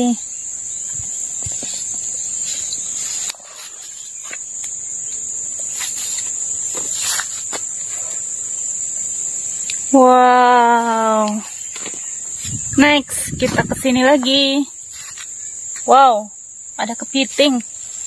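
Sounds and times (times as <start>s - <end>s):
insect trill: 0.0s - 18.0s.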